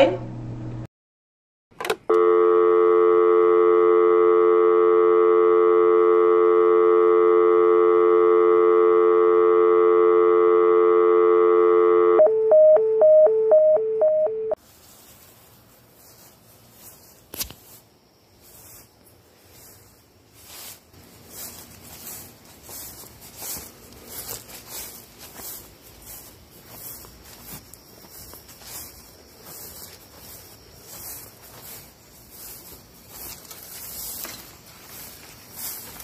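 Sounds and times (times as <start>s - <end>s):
buzzy telephone tone: 2.1s - 14.6s
two-pitch alternating beeps: 12.2s - 14.6s.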